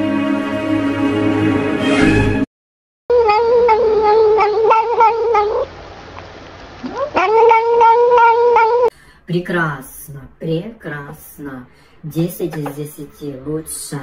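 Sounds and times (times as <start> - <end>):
cat meowing: 3.1 - 5.7, 6.8 - 8.9.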